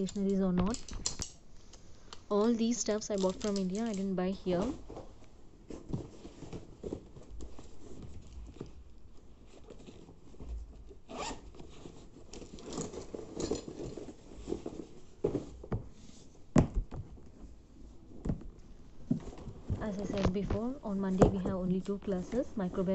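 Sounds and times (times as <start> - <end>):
rustling and scraping of books: 1.6 - 22.9
zipper pulled: 11.1 - 11.6.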